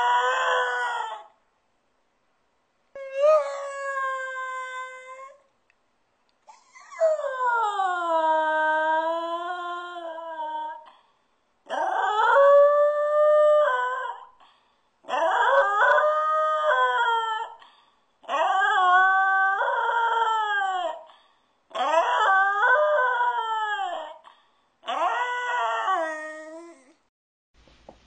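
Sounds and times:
dog howling: 0.0s - 1.4s, 3.0s - 5.4s, 6.5s - 10.9s, 11.7s - 14.4s, 15.1s - 17.6s, 18.2s - 21.1s, 21.7s - 24.2s, 24.8s - 27.0s.

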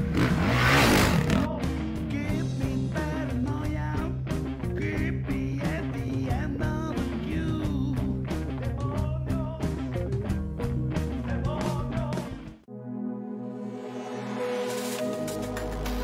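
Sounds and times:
rock music with fast beat: 0.0s - 12.6s.

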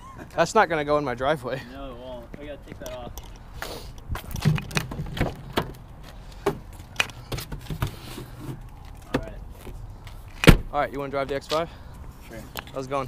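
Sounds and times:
footsteps on asphalt: 2.1s - 10.5s.

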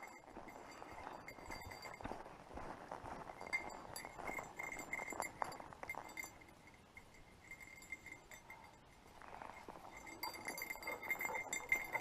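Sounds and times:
small bell jingling: 0.0s - 2.4s, 3.1s - 12.0s
footsteps crunching on dirt: 0.0s - 6.3s.

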